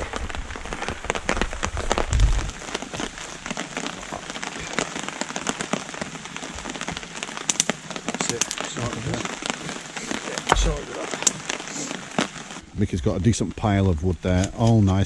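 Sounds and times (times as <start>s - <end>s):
sharp clicks and pops: 0.0s - 12.6s
heavy rain on a tarp: 0.0s - 15.0s
low thump: 10.5s - 10.8s.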